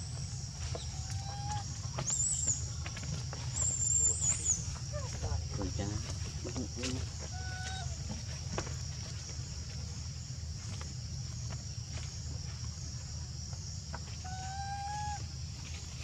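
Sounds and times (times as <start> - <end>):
insects droning: 0.0 - 16.0
baby monkey crying: 7.2 - 8.1, 14.2 - 15.2.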